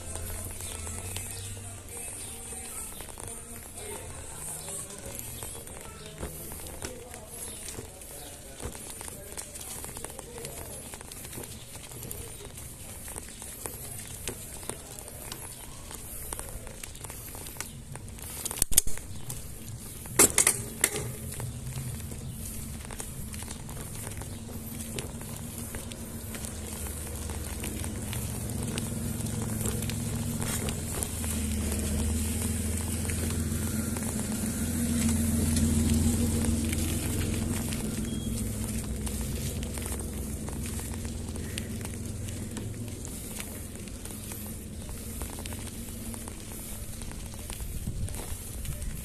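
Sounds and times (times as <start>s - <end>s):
bike tyres crackling on concrete: 0.0s - 49.0s
small clicks: 16.0s - 33.3s
low hum: 18.0s - 48.8s.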